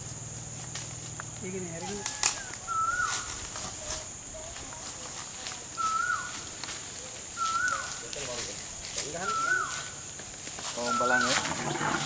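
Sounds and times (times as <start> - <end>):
insect drone: 0.0 - 12.0
bird whistling: 2.0 - 3.4, 5.8 - 6.4, 7.3 - 8.0, 9.2 - 10.0, 10.8 - 11.3.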